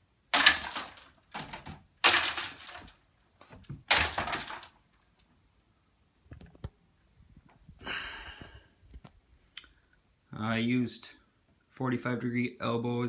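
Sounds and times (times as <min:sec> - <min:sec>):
discs hitting plastic tubes: 0:00.3 - 0:04.8.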